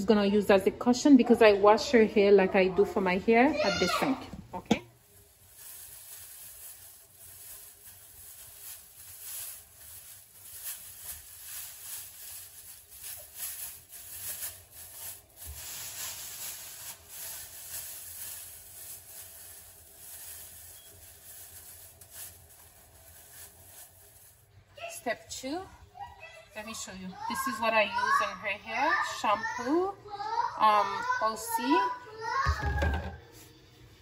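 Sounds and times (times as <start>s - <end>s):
plastic garbage bag rustling: 3.4s - 25.2s.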